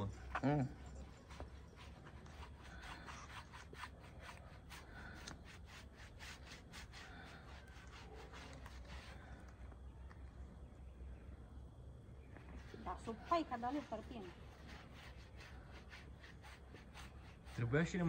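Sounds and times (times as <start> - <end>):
paintbrush scrubbing wood: 0.0 - 9.6, 12.5 - 18.0.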